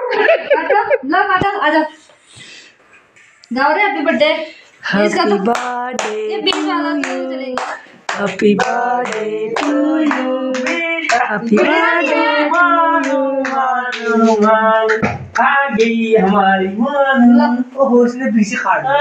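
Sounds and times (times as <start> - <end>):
group singing a birthday song: 4.7 - 19.0
people clapping in time: 5.4 - 16.0.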